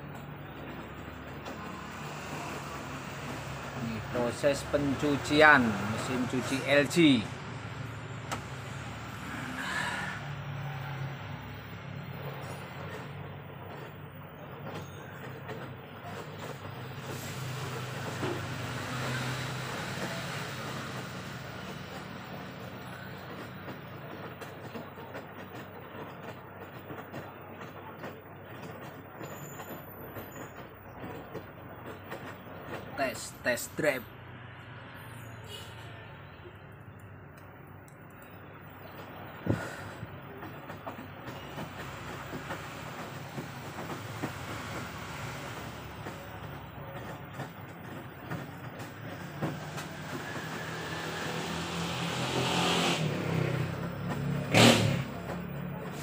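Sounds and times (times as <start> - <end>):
small irregular clicks: 36.8 - 39.2.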